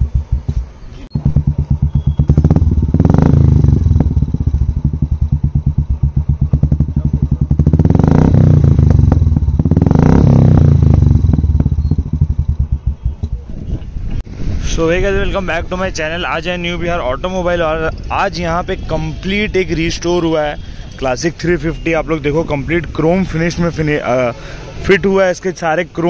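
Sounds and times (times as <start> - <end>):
motorcycle engine revving: 0.0 - 13.8.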